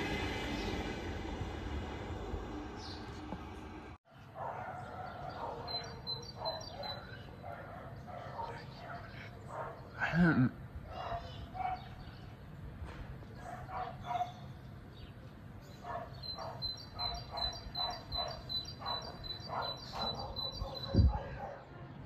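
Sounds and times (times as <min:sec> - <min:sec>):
bird chirping quickly: 0:15.7 - 0:21.2.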